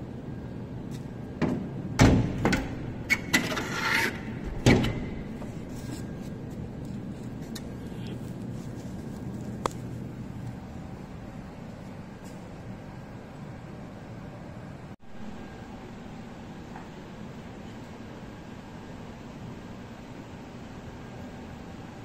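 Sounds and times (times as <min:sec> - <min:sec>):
steady low hum: 0:00.0 - 0:22.0
knocks on air-conditioner casing: 0:01.4 - 0:02.8.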